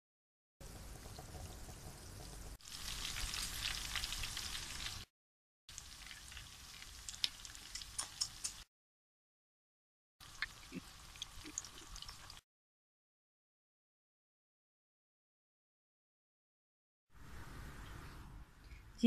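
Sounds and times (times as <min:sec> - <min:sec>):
hot oil sizzling: 0:00.6 - 0:05.1, 0:05.7 - 0:08.7, 0:10.2 - 0:12.4.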